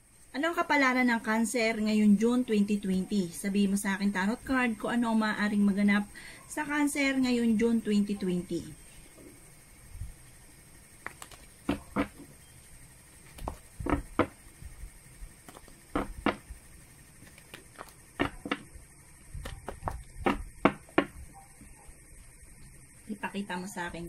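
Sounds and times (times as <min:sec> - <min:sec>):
cards being shuffled: 0:11.0 - 0:12.3, 0:13.2 - 0:14.3, 0:15.4 - 0:16.4, 0:17.2 - 0:18.6.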